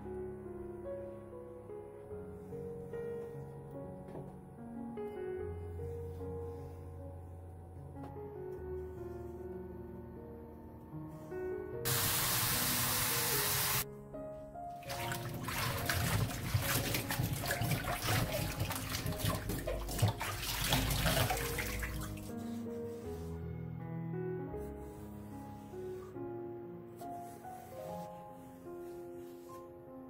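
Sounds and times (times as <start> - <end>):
soft background music: 0.0 - 30.0
water splashing: 14.8 - 22.2
hands rubbing stems in water: 14.8 - 23.2.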